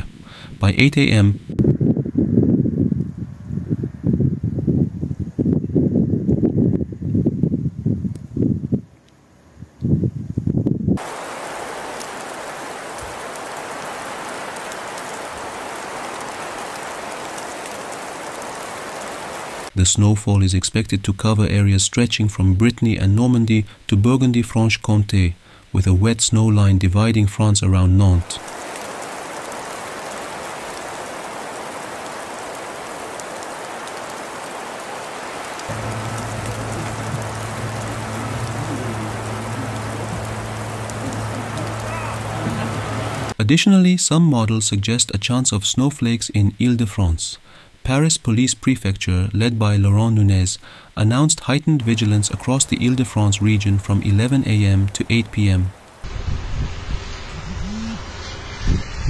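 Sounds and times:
wet snow falling and pattering: 11.0s - 19.8s, 28.2s - 43.4s, 51.6s - 59.0s
drops ticking: 28.4s - 43.4s
low steady hum: 35.7s - 43.3s.

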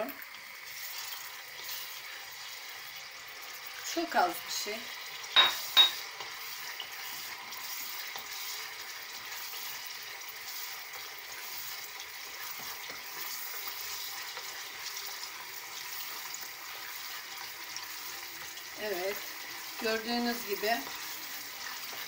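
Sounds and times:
sauce sizzling in a saucepan: 0.0s - 22.0s
spoon stirring: 5.4s - 7.0s.

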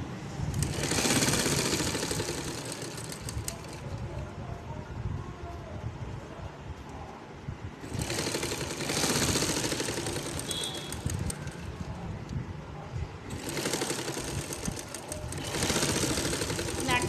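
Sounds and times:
sewing machine stitching: 0.5s - 4.0s, 7.8s - 11.8s, 13.3s - 17.0s.

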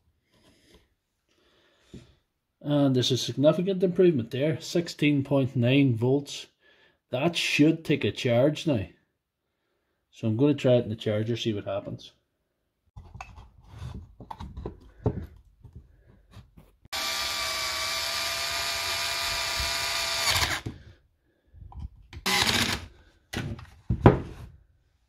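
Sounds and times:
cordless screwdriver running: 16.9s - 20.7s, 22.2s - 22.9s.

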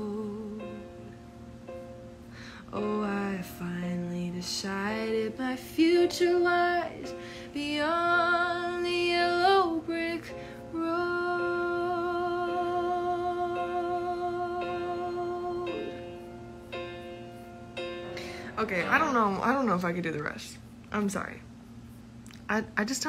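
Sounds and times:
woman singing: 0.0s - 1.1s, 2.6s - 16.2s.

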